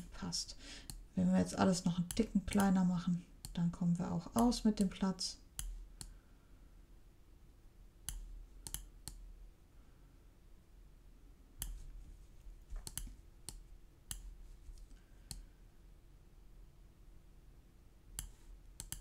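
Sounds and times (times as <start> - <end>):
faint steady hum: 0.0 - 19.0
computer mouse clicks: 5.6 - 6.2, 8.1 - 9.2, 11.6 - 11.8, 12.8 - 15.5, 18.2 - 19.0.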